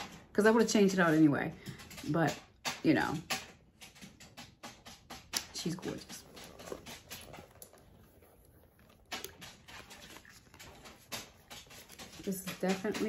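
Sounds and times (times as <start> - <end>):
handbag clicks and rustles: 5.5 - 13.0.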